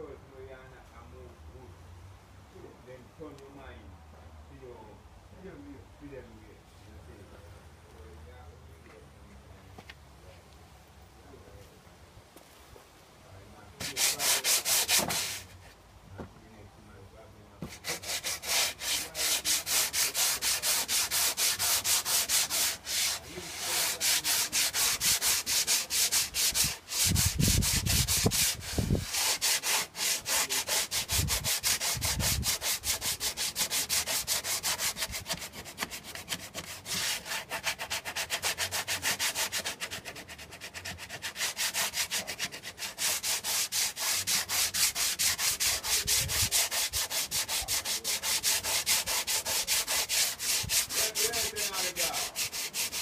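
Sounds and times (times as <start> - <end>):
sandpaper rubbing on paint: 13.8 - 15.6, 17.6 - 53.0.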